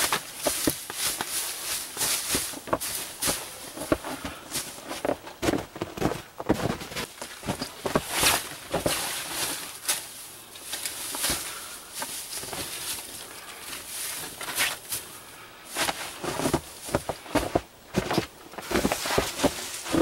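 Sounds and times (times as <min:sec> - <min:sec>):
conifer boughs rustling and crackling: 0:00.0 - 0:20.0.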